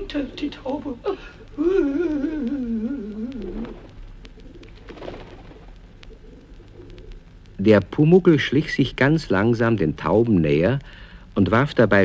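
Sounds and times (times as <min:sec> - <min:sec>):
pigeons cooing: 0:01.6 - 0:07.2.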